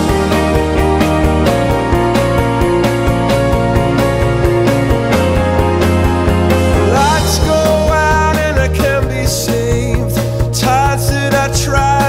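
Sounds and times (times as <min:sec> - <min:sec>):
instrumental music with steady beat: 0:00.0 - 0:12.0.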